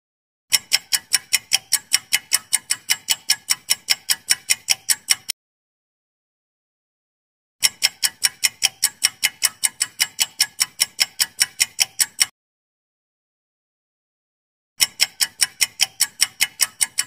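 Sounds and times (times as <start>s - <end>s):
clock ticking: 0.5s - 5.4s, 7.6s - 12.3s, 14.8s - 17.0s.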